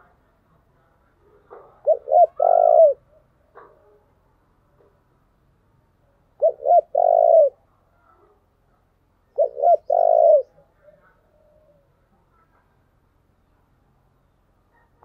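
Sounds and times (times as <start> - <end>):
dove cooing: 1.3 - 4.0, 6.4 - 7.6, 9.2 - 12.0.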